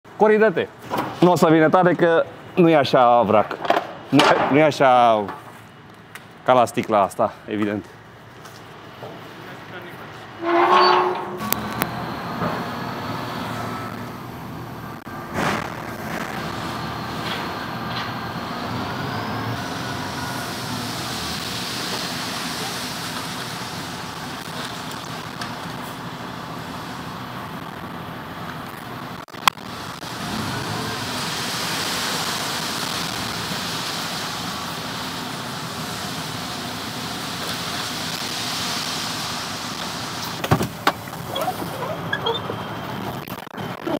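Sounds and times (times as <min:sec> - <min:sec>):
hydraulic whine rising in pitch: 0:10.4 - 0:21.4
truck engine running: 0:11.4 - 0:38.1.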